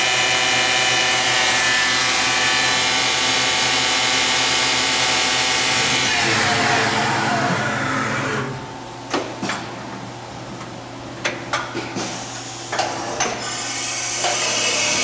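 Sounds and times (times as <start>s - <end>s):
coolant spray and cutting noise: 0.0s - 8.6s, 12.0s - 15.0s
machine hum: 1.3s - 11.2s.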